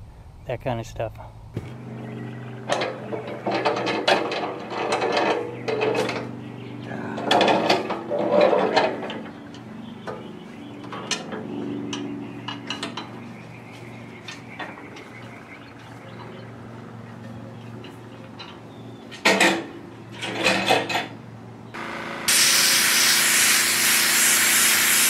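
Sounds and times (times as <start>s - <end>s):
metal mower deck clanking: 1.6s - 13.2s.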